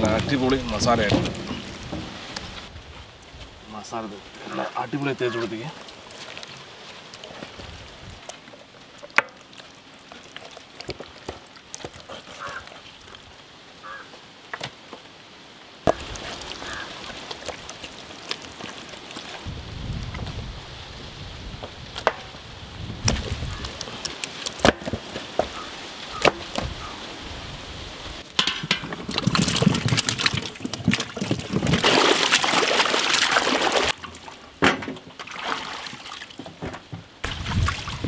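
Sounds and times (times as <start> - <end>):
water splashing in metal basin: 0.0 - 2.6, 15.9 - 19.4, 28.4 - 36.5, 37.2 - 38.0.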